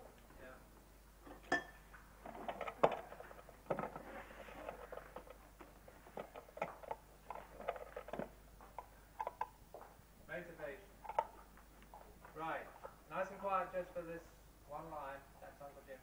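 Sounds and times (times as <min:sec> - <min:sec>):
objects knocking and clicking: 0:01.2 - 0:10.0, 0:11.0 - 0:13.0.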